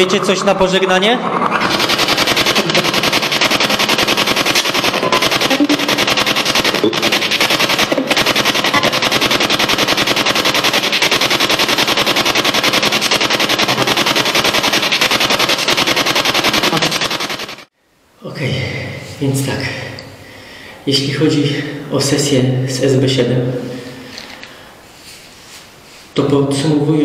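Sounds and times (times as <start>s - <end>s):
chopped radio static: 0.0s - 17.7s.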